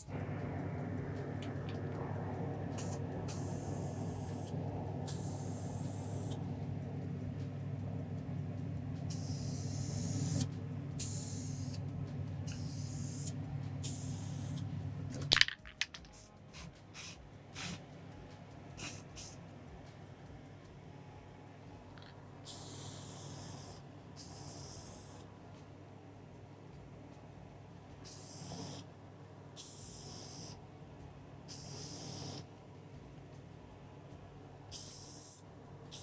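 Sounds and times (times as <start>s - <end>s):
steady low hum: 0.0s - 36.0s
spray can hissing: 9.1s - 10.4s, 11.0s - 11.8s, 12.5s - 14.6s, 15.3s - 17.8s, 18.8s - 19.4s, 28.1s - 28.8s, 31.5s - 32.4s, 34.7s - 36.0s.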